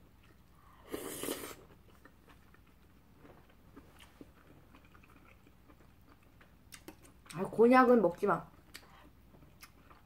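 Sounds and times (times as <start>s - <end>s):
pasta slurp: 0.8s - 2.4s
faint eating clicks: 1.8s - 10.0s.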